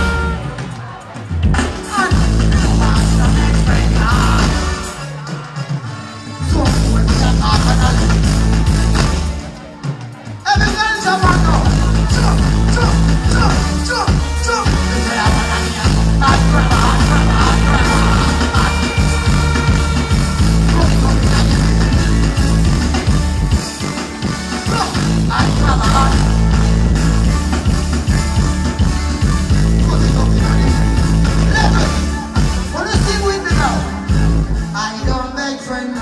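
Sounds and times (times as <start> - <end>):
dancehall music with heavy bass: 0.0 - 9.5, 10.6 - 36.0
voice over music: 10.5 - 22.0.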